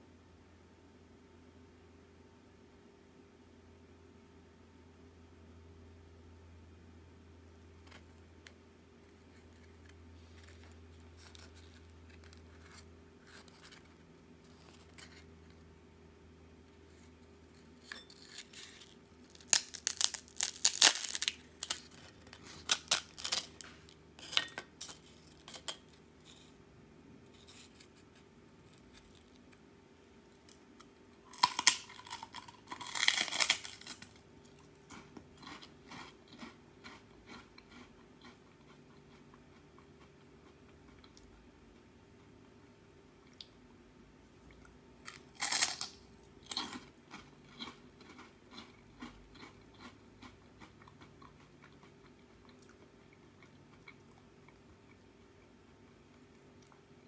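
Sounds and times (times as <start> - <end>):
wafer cracking: 18.2 - 25.8.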